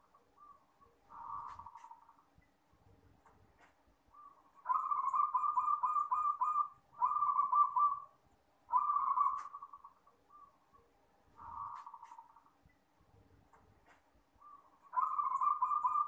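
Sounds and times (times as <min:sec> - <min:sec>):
dove cooing: 0:00.0 - 0:02.1, 0:04.2 - 0:08.1, 0:08.7 - 0:10.5, 0:11.4 - 0:12.4, 0:14.4 - 0:16.0.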